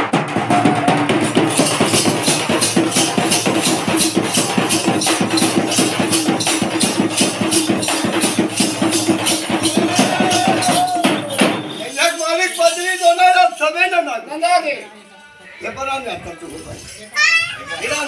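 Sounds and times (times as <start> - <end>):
folk drums beating fast: 0.0 - 12.7
jingling: 1.2 - 14.1.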